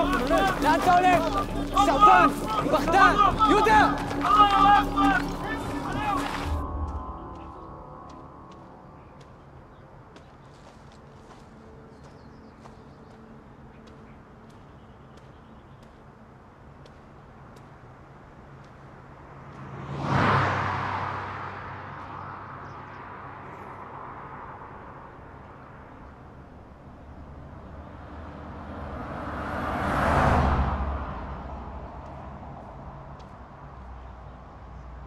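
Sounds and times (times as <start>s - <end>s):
cars passing at speed: 19.1s - 34.1s.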